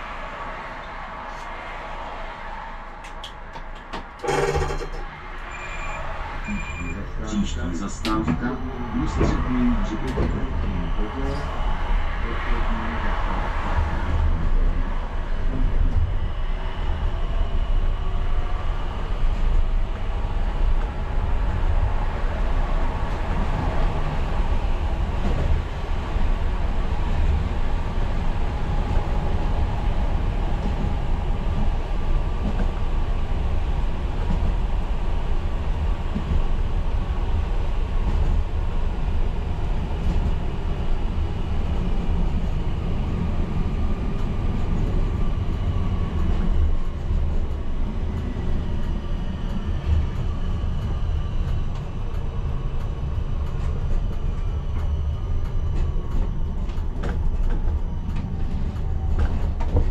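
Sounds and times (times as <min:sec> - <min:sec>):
tram wheels rumbling on rails: 0:00.0 - 0:59.9.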